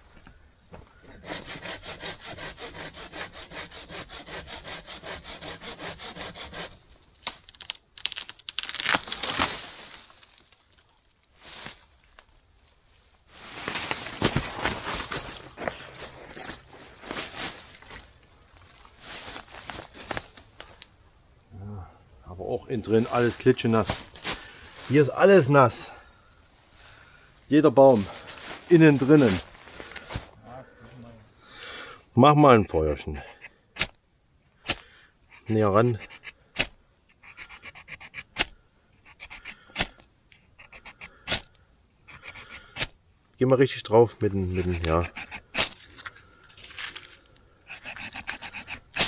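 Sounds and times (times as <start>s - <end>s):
ferro rod scraping: 1.2s - 6.8s, 34.7s - 41.4s, 47.7s - 49.0s
rapid scratching on tinder: 1.2s - 6.8s, 33.1s - 33.9s, 35.3s - 41.4s, 42.1s - 42.9s, 44.4s - 45.8s, 47.7s - 49.0s
wood cracking and snapping: 7.0s - 11.3s.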